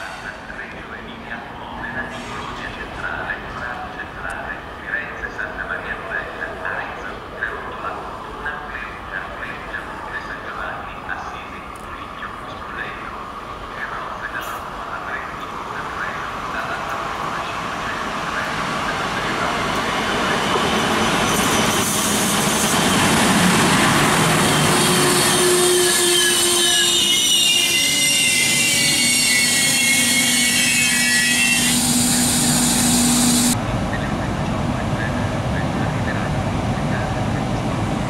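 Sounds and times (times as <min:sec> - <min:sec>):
train wheels rumbling on rail: 0:11.4 - 0:38.0
high-pitched wheel squeal: 0:24.4 - 0:33.6.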